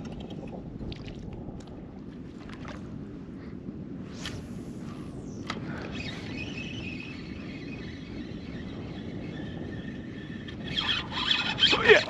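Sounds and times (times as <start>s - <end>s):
wind buffeting microphone: 0.0s - 12.0s
faint high whirr: 5.4s - 12.0s.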